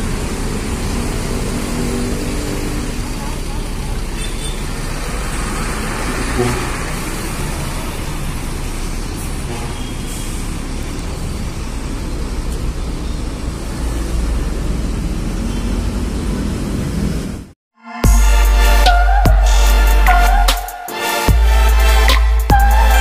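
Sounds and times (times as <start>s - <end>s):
diesel bus engine pulling away: 0.0s - 23.0s
road and traffic noise: 0.0s - 23.0s.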